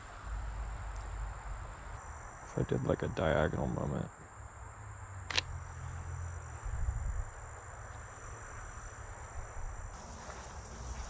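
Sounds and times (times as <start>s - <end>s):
crickets droning: 0.0s - 11.0s
camera shutter click: 5.3s - 5.5s
bright hiss: 9.9s - 11.0s.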